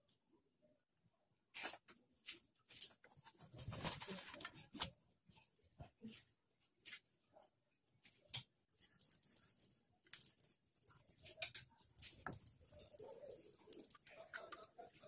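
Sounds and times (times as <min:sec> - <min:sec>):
butter crackling in a pan: 0:08.7 - 0:15.0.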